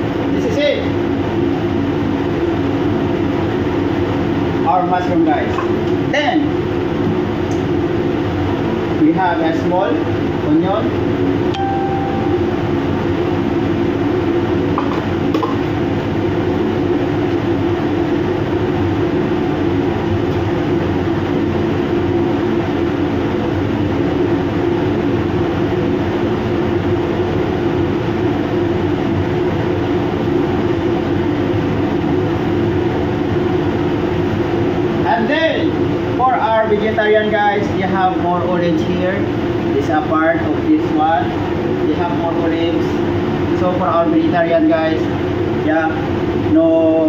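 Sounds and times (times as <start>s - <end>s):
machinery droning: 11.5s - 14.7s.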